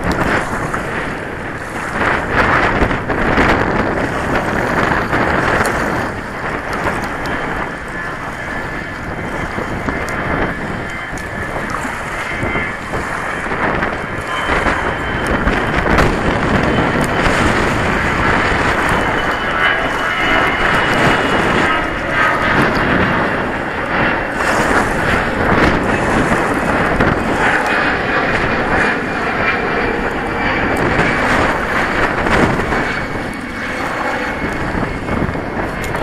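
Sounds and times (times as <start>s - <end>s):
water slapping against kayak: 0.0s - 36.0s
wind buffeting microphone: 0.0s - 36.0s.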